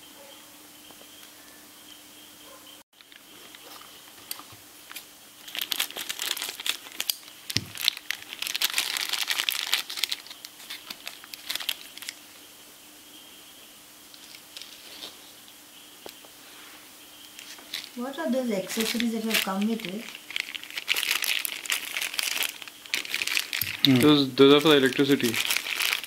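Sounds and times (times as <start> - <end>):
plastic bag crinkling: 3.0 - 12.2, 17.4 - 26.0.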